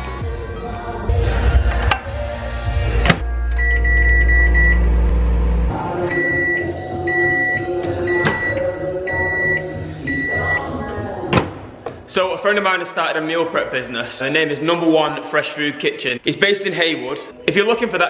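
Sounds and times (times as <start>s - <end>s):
high-pitched microwave beeps: 3.6s - 4.9s, 6.1s - 10.7s
microwave door opening: 8.1s - 8.6s.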